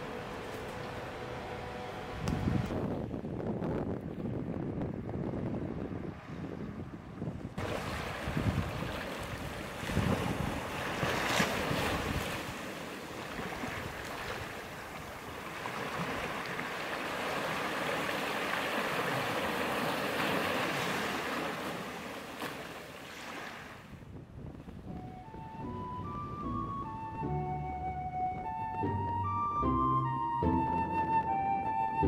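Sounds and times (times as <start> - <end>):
wind rumble on microphone: 2.1 - 12.6, 13.3 - 16.6, 23.8 - 29.2
small waves breaking on beach: 7.6 - 24.0.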